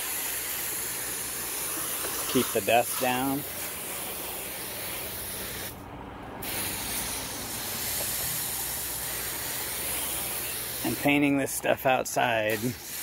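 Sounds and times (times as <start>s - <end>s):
hose spraying water on concrete: 0.0s - 5.8s, 6.4s - 13.0s.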